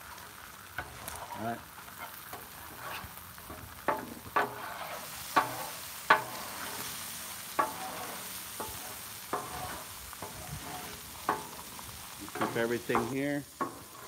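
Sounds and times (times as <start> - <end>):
food sizzling on a griddle: 0.0 - 14.0
spatula clinking and scraping metal: 0.8 - 3.1, 3.9 - 14.0.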